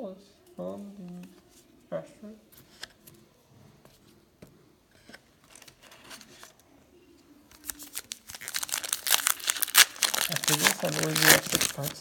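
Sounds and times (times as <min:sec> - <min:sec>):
wrapper tearing and crinkling: 0:07.6 - 0:12.0.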